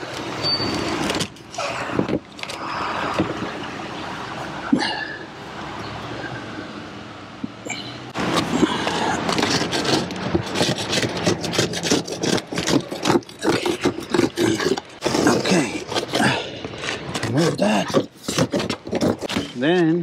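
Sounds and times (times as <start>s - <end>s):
metal scraper rasping: 8.2s - 16.4s.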